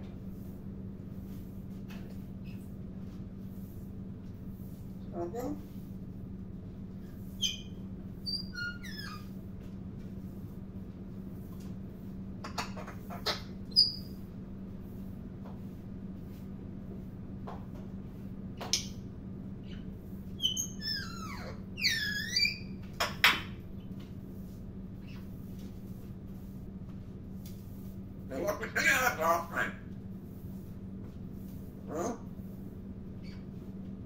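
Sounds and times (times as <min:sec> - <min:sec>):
steady low hum: 0:00.0 - 0:34.0
parrot squeaks and clicks: 0:20.4 - 0:23.5.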